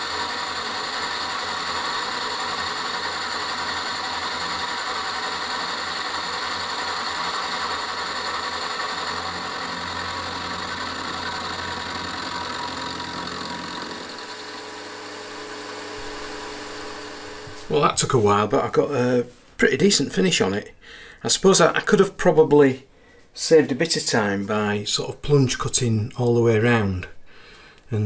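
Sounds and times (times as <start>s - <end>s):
end mill cutting metal: 0.0s - 18.5s
milling machine whine: 0.0s - 18.7s.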